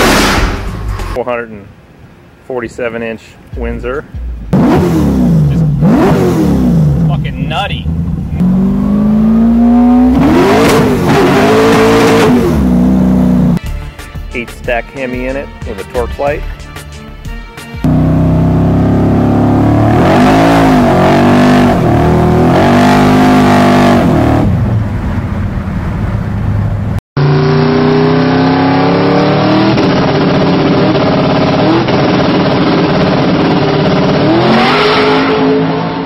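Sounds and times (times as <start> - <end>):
car engine revving: 4.2 - 13.6, 17.8 - 36.0
car accelerating hard: 4.5 - 13.6, 17.8 - 24.8, 27.2 - 36.0.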